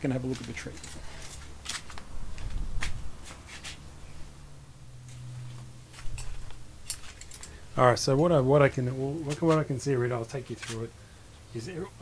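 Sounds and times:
footsteps and shuffling: 0:00.1 - 0:03.9, 0:05.0 - 0:07.6
light scuffs and clicks: 0:00.1 - 0:03.9, 0:05.0 - 0:07.6, 0:09.2 - 0:09.8, 0:10.4 - 0:10.9.

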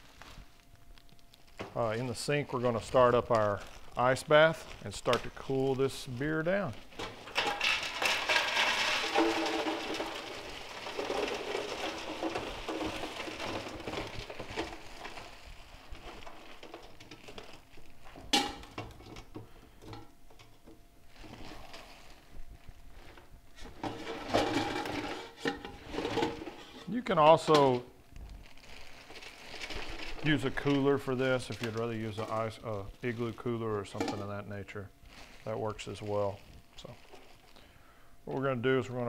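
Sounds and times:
plastic crinkling: 0:00.0 - 0:39.0
ice clattering against metal: 0:06.4 - 0:20.0, 0:23.8 - 0:27.8.

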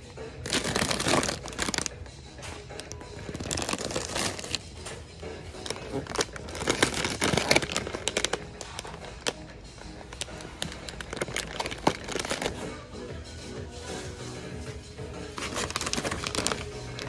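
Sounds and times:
plastic snack bags crinkling: 0:00.4 - 0:02.0, 0:02.6 - 0:12.7, 0:15.3 - 0:17.0.

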